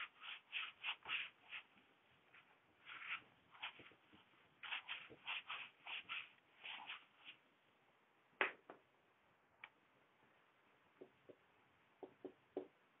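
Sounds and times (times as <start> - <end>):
duster wiping whiteboard: 0.0 - 7.5.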